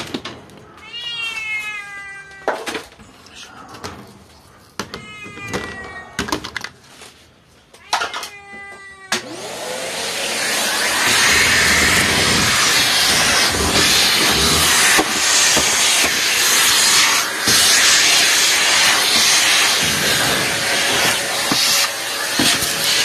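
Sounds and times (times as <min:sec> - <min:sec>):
vacuum cleaner hissing: 0:09.2 - 0:23.0.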